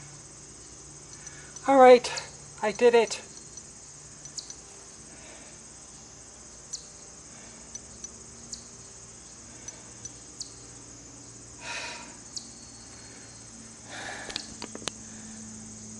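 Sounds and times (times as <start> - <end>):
insect chorus: 0.0 - 15.9
small clicks: 14.2 - 15.0.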